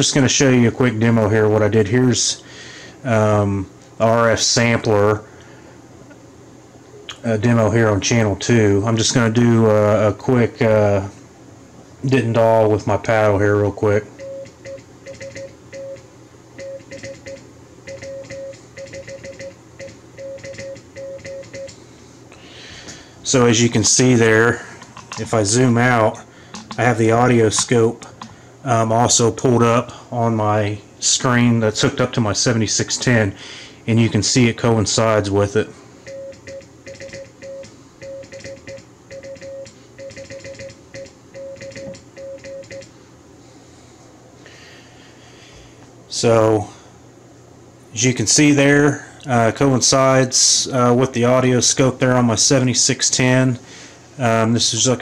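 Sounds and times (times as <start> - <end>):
morse code beeping: 14.2 - 21.8, 26.5 - 28.4, 36.0 - 42.9
sharp paddle clicks: 26.5 - 27.0, 27.6 - 28.4.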